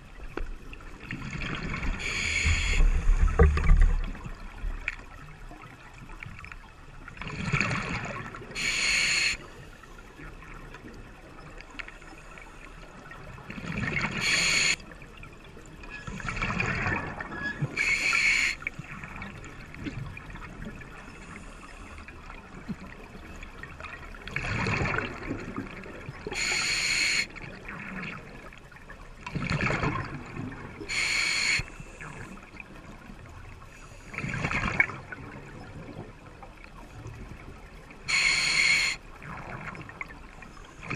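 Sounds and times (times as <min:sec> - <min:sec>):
regulator hiss on inhale: 0:02.0 - 0:03.1, 0:08.6 - 0:09.9, 0:14.2 - 0:14.8, 0:17.8 - 0:18.7, 0:26.4 - 0:27.3, 0:30.9 - 0:32.2, 0:38.1 - 0:39.0
gurgle of exhaled bubbles: 0:07.2 - 0:08.5, 0:24.2 - 0:26.4, 0:29.3 - 0:30.8.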